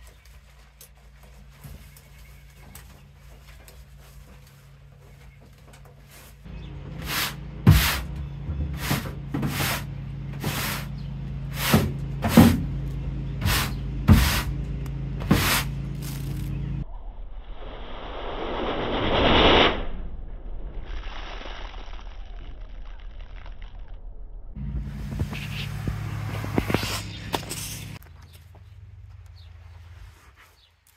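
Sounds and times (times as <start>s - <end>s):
broom scraping metal floor: 6.0s - 12.8s, 13.4s - 14.6s, 15.2s - 16.6s, 24.9s - 28.0s.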